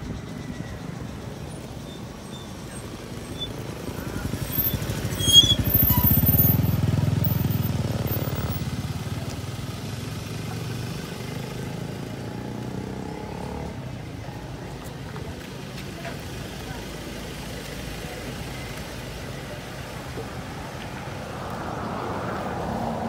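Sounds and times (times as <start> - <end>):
vehicle engine passing: 21.2 - 23.0.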